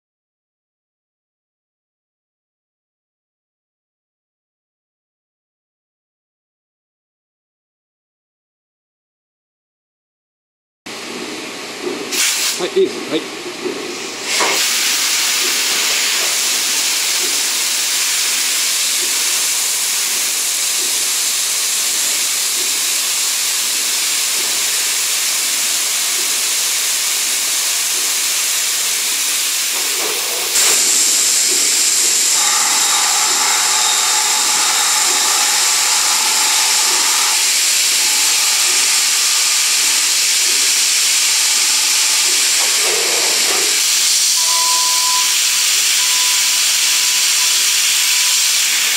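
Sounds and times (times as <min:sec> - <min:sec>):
machine whine: 0:13.7 - 0:48.9
coolant spraying and hissing: 0:14.1 - 0:48.9.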